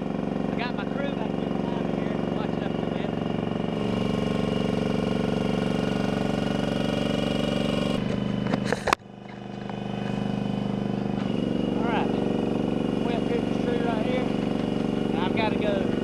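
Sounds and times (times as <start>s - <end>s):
boom lift engine running: 0.0s - 16.0s
short clatter: 7.9s - 10.3s.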